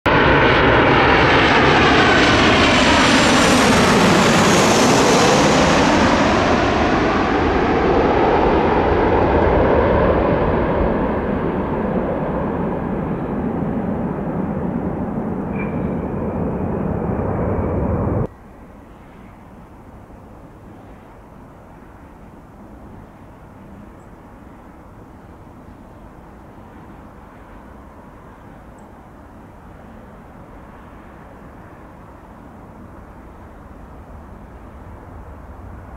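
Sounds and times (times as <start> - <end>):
jet engine whine falling in pitch: 0.1 - 19.9
jet airliner passing: 0.1 - 35.9.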